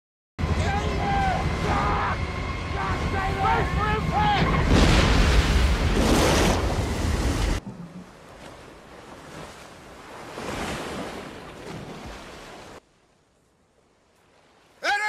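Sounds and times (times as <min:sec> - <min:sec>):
storm wind and sea spray: 0:00.5 - 0:07.6, 0:08.4 - 0:12.8
small waves on sandy beach: 0:04.8 - 0:15.0.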